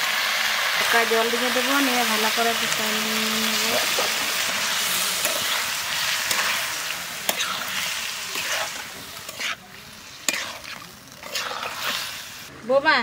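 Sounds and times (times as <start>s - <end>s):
curry sizzling in a pan: 0.0s - 12.6s
spatula scraping a pan: 3.5s - 12.5s.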